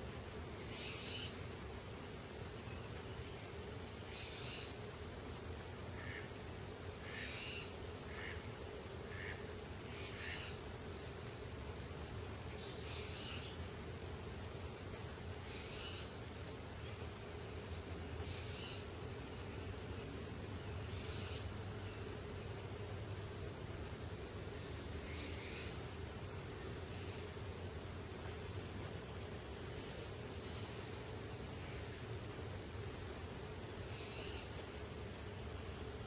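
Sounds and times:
low background hum: 0.0s - 36.0s
bird buzzy call: 5.9s - 6.4s, 7.0s - 10.7s, 33.9s - 34.6s.

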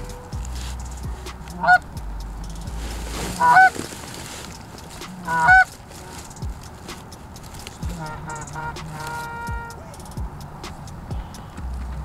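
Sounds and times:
goose honks: 1.5s - 1.8s, 3.3s - 3.7s, 5.1s - 5.7s, 7.9s - 10.0s.

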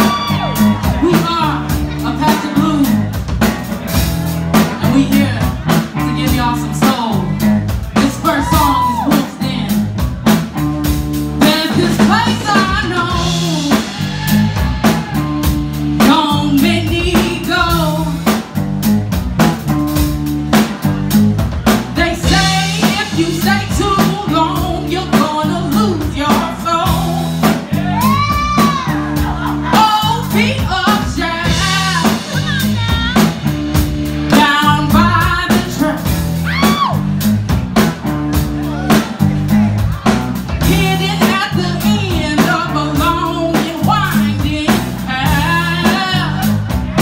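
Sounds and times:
bass guitar: 0.0s - 47.0s
drum kit beat: 0.0s - 47.0s
electric guitar: 0.0s - 47.0s
person singing: 4.8s - 10.0s, 11.4s - 18.3s, 22.0s - 33.4s, 34.3s - 37.0s, 38.6s - 47.0s.

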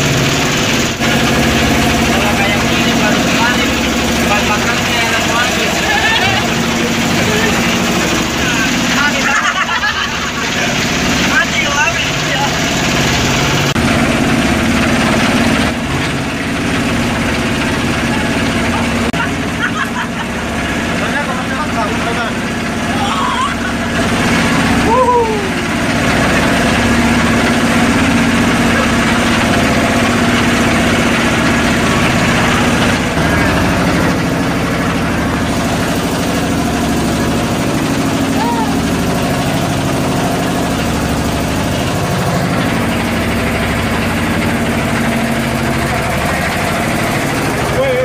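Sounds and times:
motorboat engine humming: 0.0s - 48.0s.

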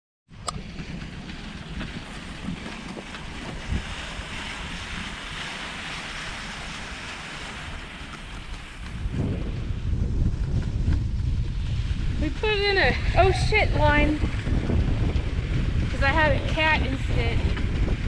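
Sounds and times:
wind buffeting microphone: 0.3s - 18.0s
sled runners gliding on snow: 0.4s - 18.0s.

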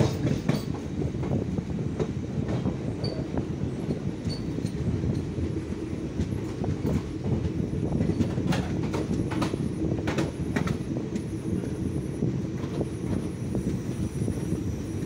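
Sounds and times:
train wheels rumbling on rails: 0.0s - 15.0s
wheels clacking over track joints: 6.2s - 11.3s.

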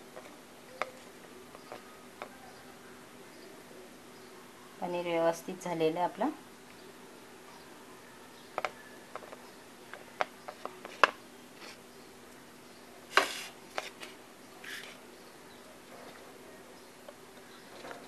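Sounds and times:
fingers handling paneer on plastic plate: 0.0s - 2.6s, 8.5s - 11.8s.

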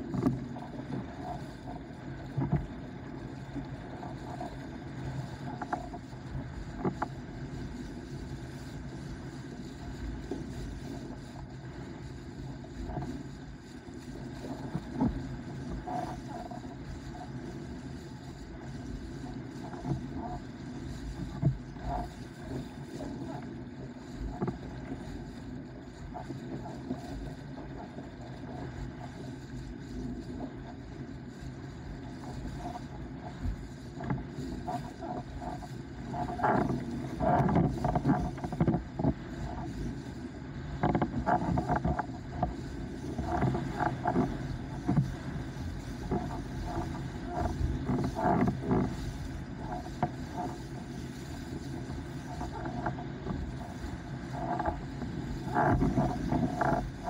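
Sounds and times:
rush of water and wind: 0.0s - 57.0s.

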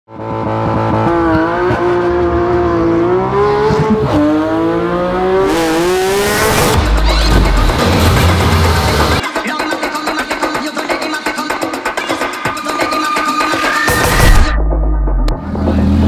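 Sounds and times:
sports car engine revving hard: 0.1s - 7.3s.

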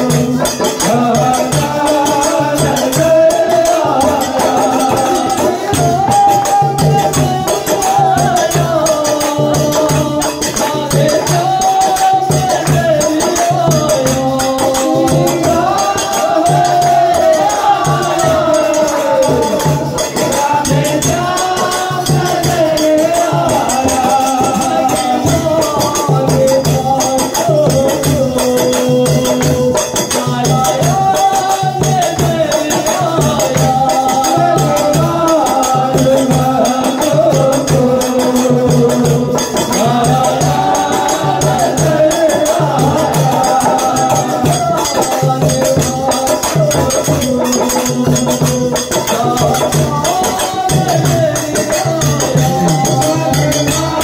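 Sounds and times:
group devotional singing: 0.0s - 54.0s
jingling hand percussion: 0.0s - 54.0s.

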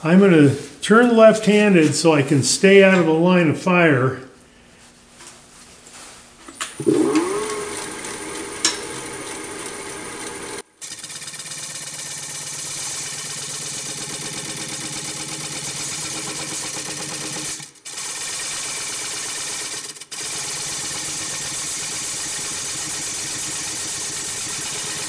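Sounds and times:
wood lathe gouge cutting: 6.8s - 16.8s.

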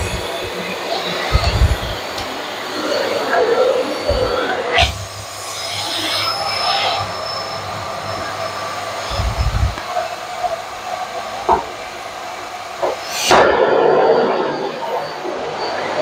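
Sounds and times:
vacuum cleaner on hard floor: 0.0s - 5.0s.

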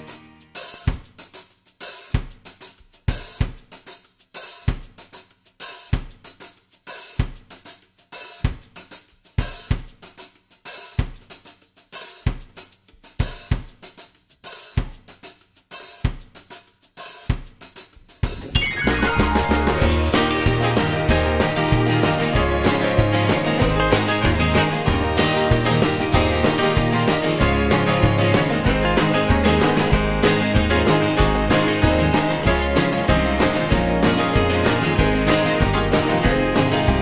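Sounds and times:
hi-hat and cymbal strokes: 0.0s - 18.5s
drum kit beat: 0.0s - 37.0s
bass drum hits: 18.3s - 37.0s.

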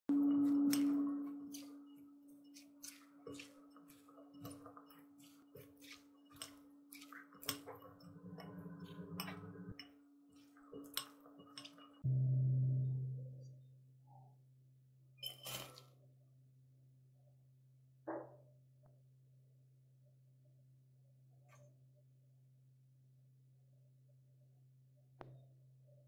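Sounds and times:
spatulas clicking against glass bowl: 6.3s - 7.8s
loud low tone: 12.0s - 13.9s.

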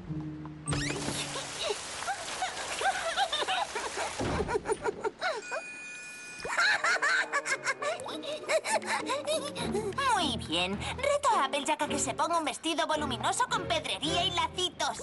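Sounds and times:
rain hissing: 0.8s - 4.5s
wet dripping and splashing: 1.0s - 4.6s.

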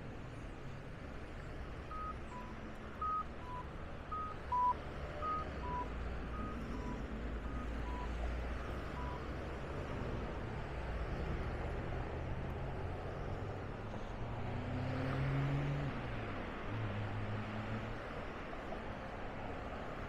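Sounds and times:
low traffic rumble: 0.0s - 20.0s
crossing signal two-note beeps: 1.9s - 9.3s.

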